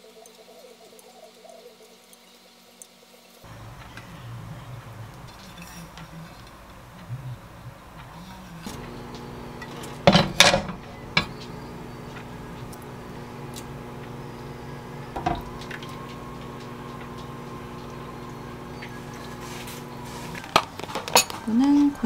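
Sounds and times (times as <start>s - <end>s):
steady low hum: 3.4s - 22.0s
utensil clinking on cookware: 20.9s - 21.5s.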